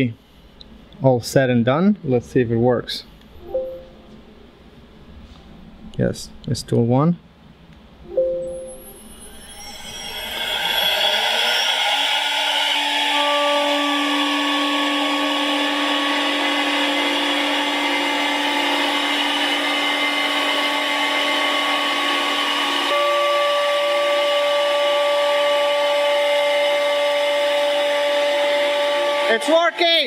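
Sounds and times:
router spindle whine: 0:08.7 - 0:30.0
end mill cutting hardwood: 0:09.5 - 0:30.0.

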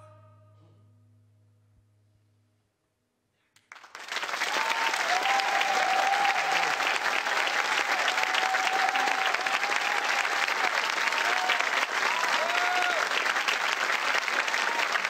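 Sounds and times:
audience applauding and cheering: 0:03.6 - 0:15.0.

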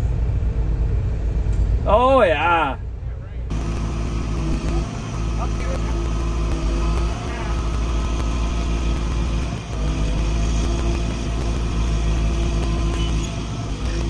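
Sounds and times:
heavy diesel engine running: 0:02.9 - 0:14.0.

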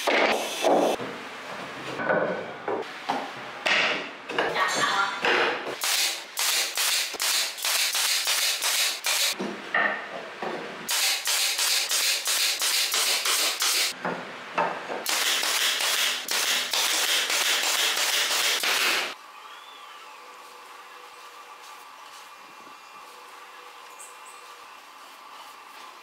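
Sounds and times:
air stapler firing into wood: 0:05.8 - 0:09.4, 0:10.9 - 0:13.9, 0:15.0 - 0:19.1.

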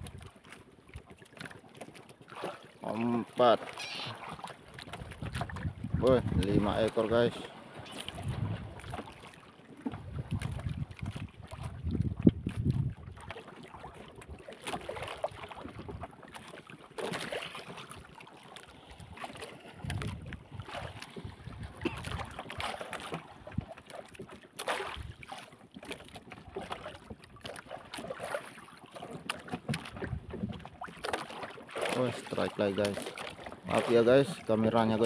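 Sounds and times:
water slapping against boat hull: 0:00.0 - 0:35.0
wind buffeting microphone: 0:05.0 - 0:07.0, 0:08.1 - 0:09.0, 0:10.0 - 0:13.2, 0:19.8 - 0:22.4, 0:29.9 - 0:30.6.

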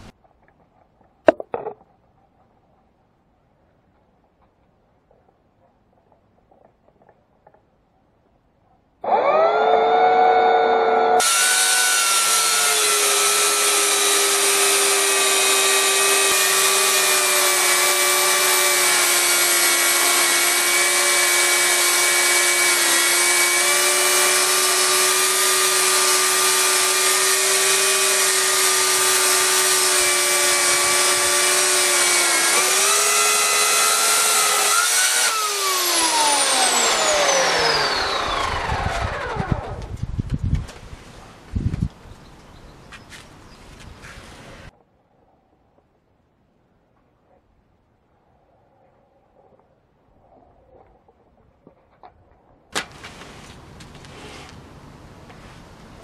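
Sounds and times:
electric chainsaw cutting wood: 0:09.0 - 0:40.0.

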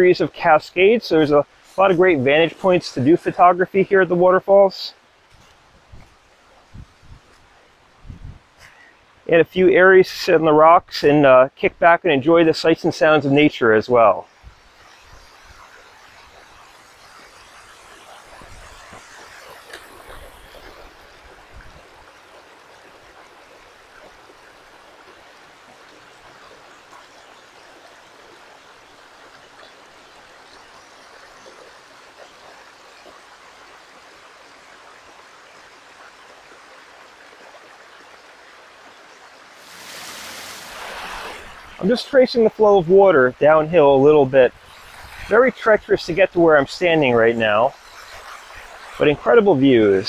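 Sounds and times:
stream rushing over rocky cascades: 0:00.0 - 0:11.5, 0:12.4 - 0:50.0.

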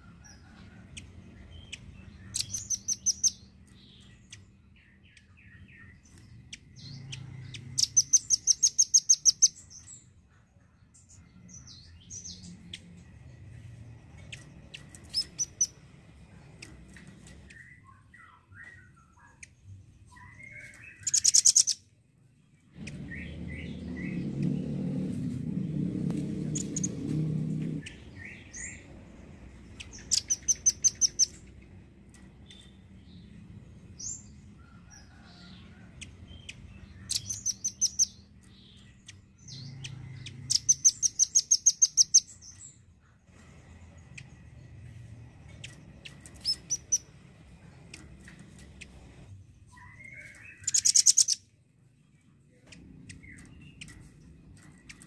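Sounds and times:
soft bird chirps: 0:01.0 - 0:15.8, 0:16.6 - 0:21.9, 0:36.4 - 0:55.0
bird calling in rapid trills: 0:07.8 - 0:09.6, 0:20.4 - 0:21.8, 0:29.8 - 0:31.4, 0:40.3 - 0:42.3, 0:49.7 - 0:51.4
low rumble: 0:22.4 - 0:40.8.

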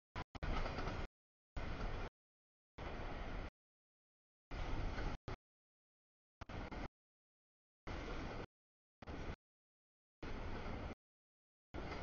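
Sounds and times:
freight train rolling on rails: 0:00.4 - 0:02.1.

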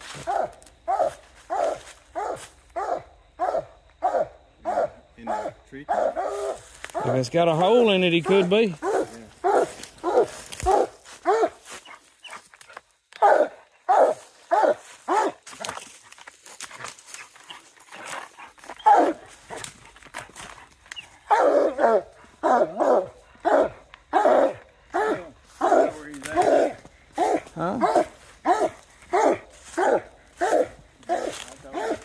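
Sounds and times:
dog barking: 0:00.2 - 0:07.2, 0:08.3 - 0:11.6, 0:13.2 - 0:15.4, 0:18.8 - 0:19.3, 0:21.2 - 0:32.0.

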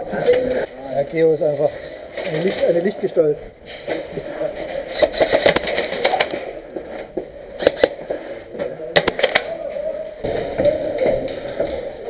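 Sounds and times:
steady background noise: 0:00.0 - 0:12.0
airsoft clacks and knocks: 0:03.7 - 0:09.5.

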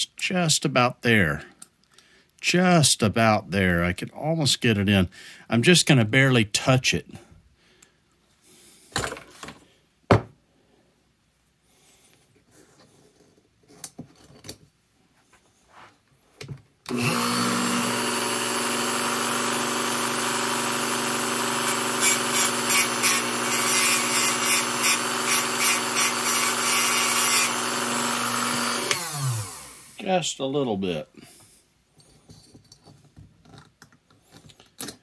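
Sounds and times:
rotary tool grinding metal: 0:16.9 - 0:30.0
rotary tool whining: 0:16.9 - 0:30.0.

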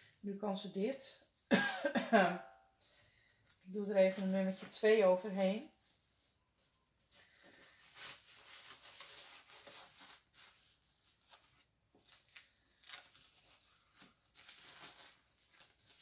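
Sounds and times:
diaper rustling and crinkling: 0:03.4 - 0:16.0.

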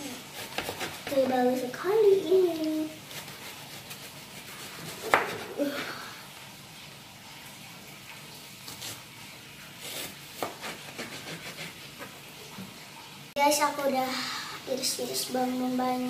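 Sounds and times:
knife tapping cutting board: 0:05.0 - 0:05.5.

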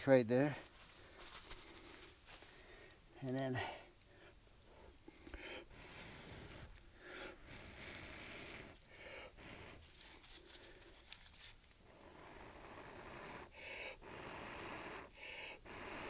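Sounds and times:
bark tearing and rustling: 0:09.8 - 0:11.7.

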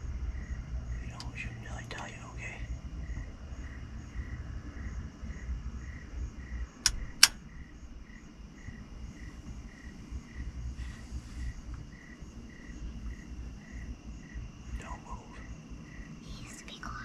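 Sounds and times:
crickets chirping: 0:00.0 - 0:17.0
sharp clicks: 0:06.8 - 0:07.4.

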